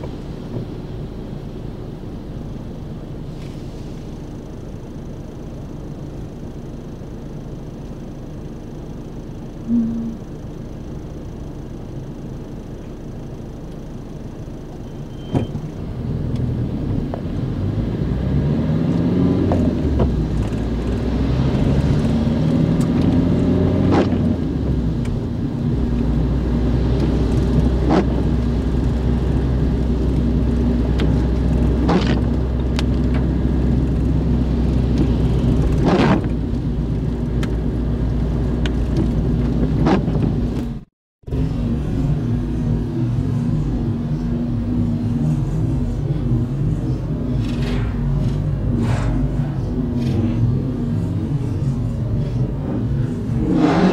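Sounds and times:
car engine accelerating: 8.9 - 12.1, 15.4 - 53.9.

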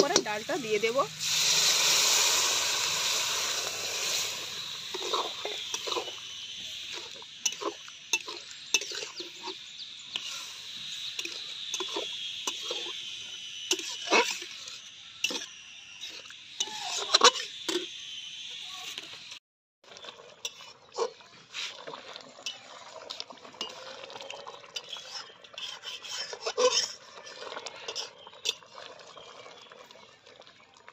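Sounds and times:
lentils sizzling in hot pan: 0.0 - 30.7
metal spatula clinking in pan: 7.5 - 9.3, 24.8 - 27.0.

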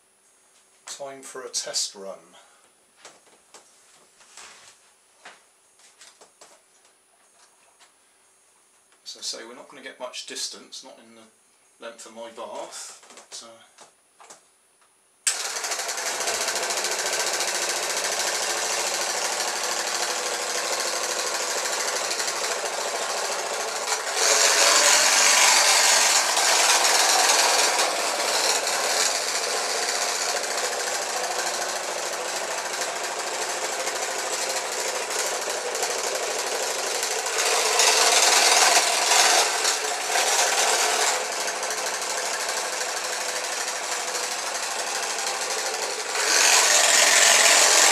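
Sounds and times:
electric toothbrush motor buzzing: 15.3 - 47.9.

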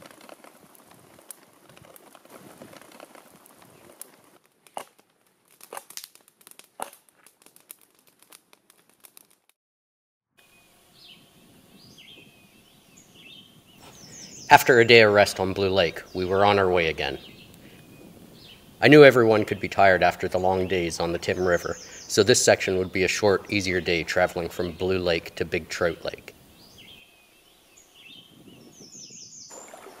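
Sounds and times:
campfire crackling and popping: 0.0 - 9.6, 11.8 - 27.1
birds chirping faintly: 10.4 - 30.0.

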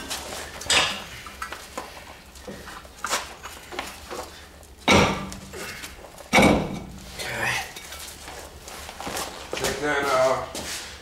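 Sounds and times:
sharp metal knocks: 4.8 - 5.4, 6.3 - 7.0.

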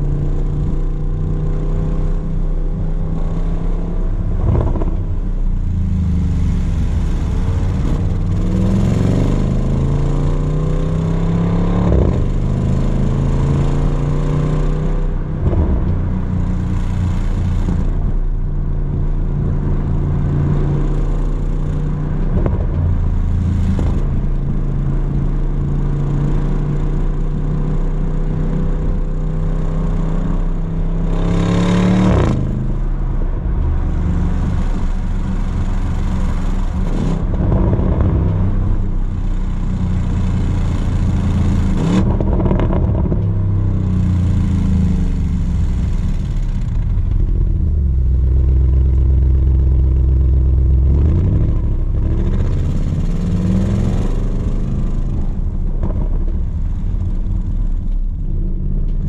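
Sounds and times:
car exhaust note: 0.0 - 10.7.

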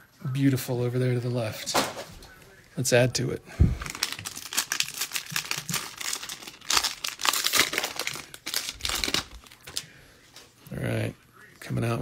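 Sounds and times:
foil wrapper tearing and crinkling: 3.8 - 9.9.

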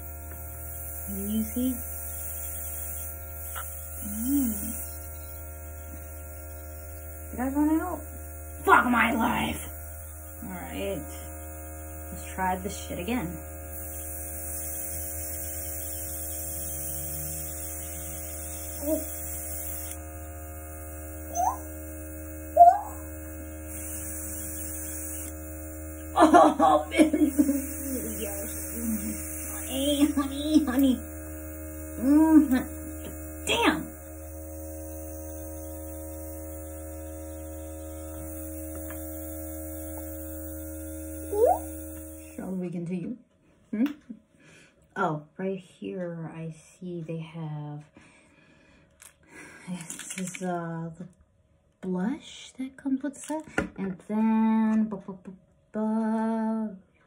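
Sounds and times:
air hissing from airbrush: 0.0 - 11.4, 13.7 - 20.0, 23.7 - 26.2, 26.8 - 30.8, 34.2 - 42.2
compressor electric hum: 0.0 - 57.0.

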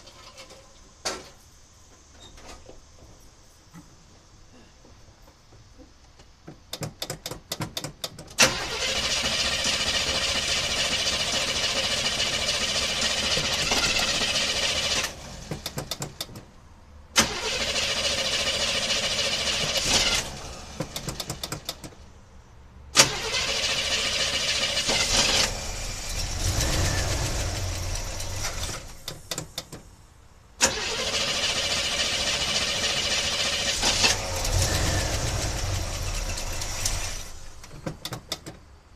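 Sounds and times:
engine starter cranking: 6.7 - 16.4, 17.1 - 22.0, 22.9 - 29.8, 30.6 - 38.6
engine sputtering: 8.4 - 16.3, 17.2 - 22.0, 23.0 - 29.6, 30.6 - 38.4
engine running: 22.9 - 29.5, 30.6 - 38.4.

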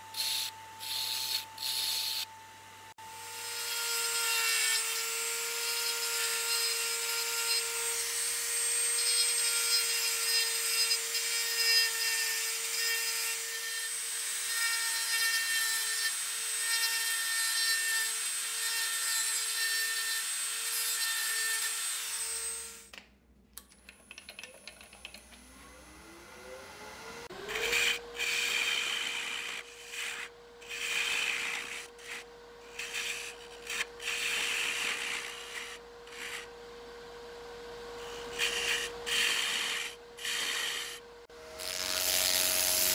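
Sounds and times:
rotary tool grinding wood: 0.0 - 2.3, 27.3 - 36.6, 38.0 - 42.9
wood lathe whining: 0.0 - 2.3, 25.6 - 42.9
turning tool scraping wood: 27.4 - 36.6, 38.0 - 41.0.

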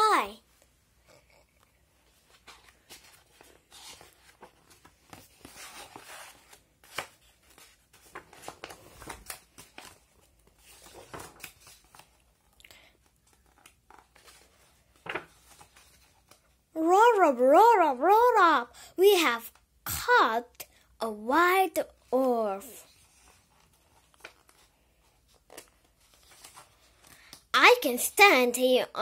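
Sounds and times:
book pages rustling: 0.4 - 16.6, 22.8 - 27.5.

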